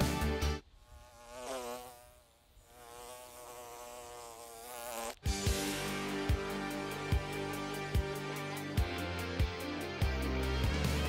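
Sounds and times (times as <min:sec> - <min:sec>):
background music: 0:00.0 - 0:00.6, 0:05.2 - 0:11.0
flying insect buzzing: 0:00.2 - 0:10.0.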